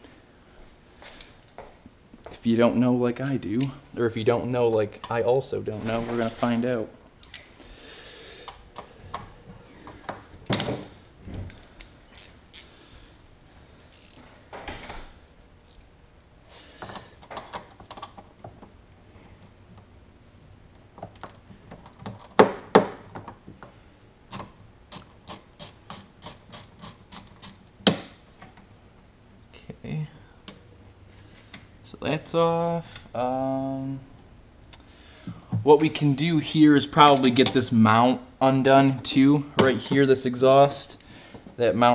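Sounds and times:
socket ratchet clicking: 0:11.5 - 0:12.8, 0:13.9 - 0:14.3, 0:24.3 - 0:27.7.

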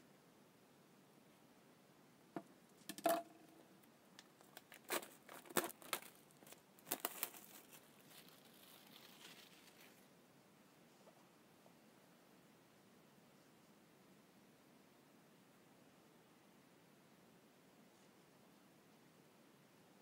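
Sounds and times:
faint rustle: 0:04.3 - 0:10.1
packaging tearing and crinkling: 0:04.4 - 0:10.0.

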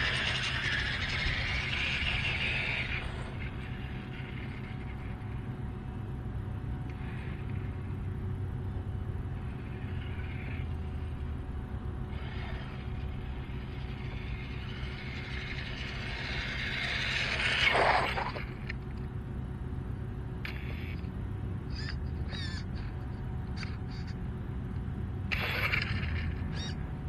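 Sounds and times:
rc car motor whine: 0:00.0 - 0:05.6, 0:06.9 - 0:08.4, 0:09.2 - 0:19.0, 0:20.4 - 0:21.1, 0:21.7 - 0:22.8, 0:25.3 - 0:26.8
steady low rumble: 0:00.0 - 0:27.0.

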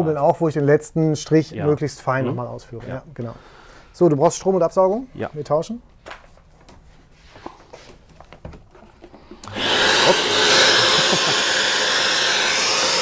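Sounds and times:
vacuum extractor running: 0:09.4 - 0:13.0.

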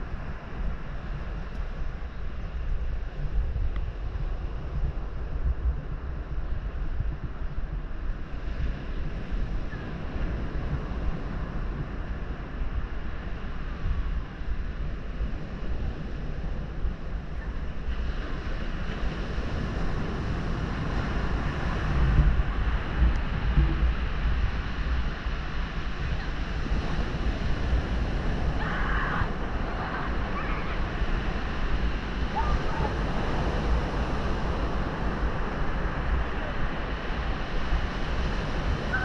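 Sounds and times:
wind gusting on microphone: 0:00.0 - 0:39.0
surf breaking on beach: 0:08.2 - 0:39.0.

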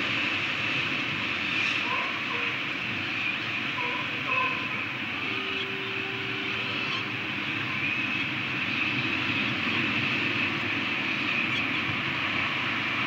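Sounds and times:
rushing background noise: 0:00.0 - 0:13.0.

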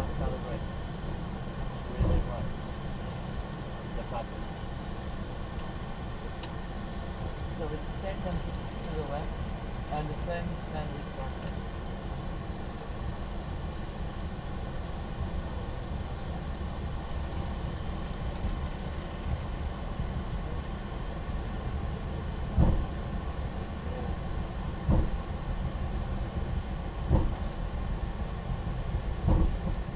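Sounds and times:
airliner cockpit rumble: 0:00.0 - 0:29.9
short thumps: 0:24.9 - 0:25.2, 0:27.1 - 0:27.4.

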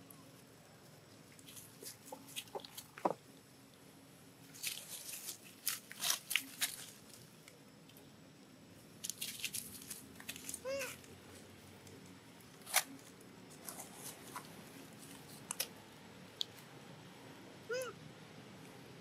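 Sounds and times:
dry leaves crackling and rustling: 0:04.5 - 0:07.2, 0:09.0 - 0:11.5.

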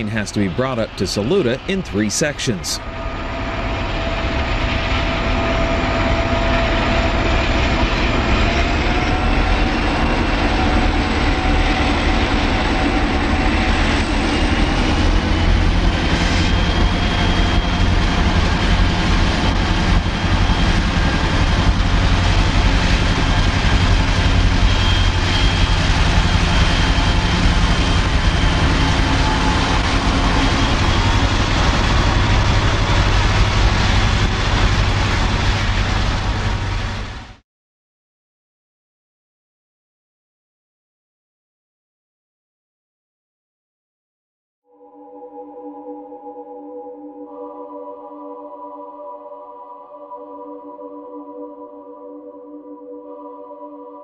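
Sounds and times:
diesel locomotive engine rumble: 0:00.0 - 0:37.4.

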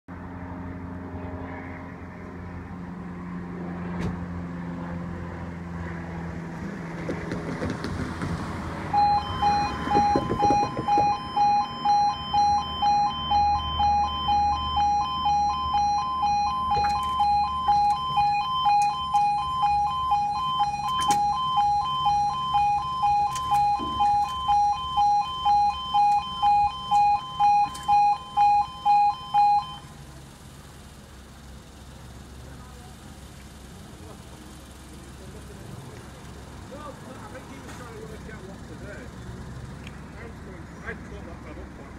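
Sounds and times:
road traffic: 0:00.1 - 0:41.9
two-tone crossing alarm: 0:08.9 - 0:29.9.

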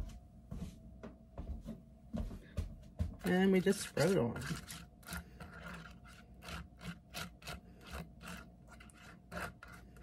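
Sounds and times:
spatula scraping on toasted flatbread: 0:04.0 - 0:10.0.

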